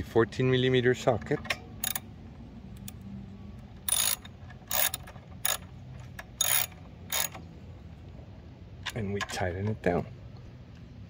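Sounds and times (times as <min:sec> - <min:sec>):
socket ratchet clicking: 0:01.5 - 0:02.1, 0:03.8 - 0:07.4.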